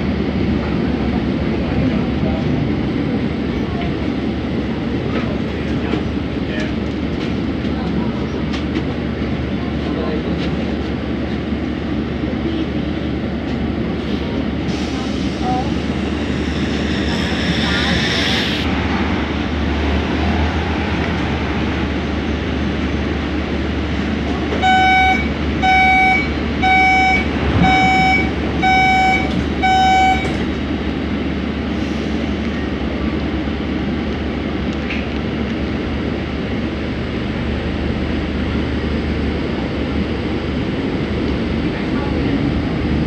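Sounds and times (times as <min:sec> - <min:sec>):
door-closing warning beeps: 0:24.6 - 0:30.4.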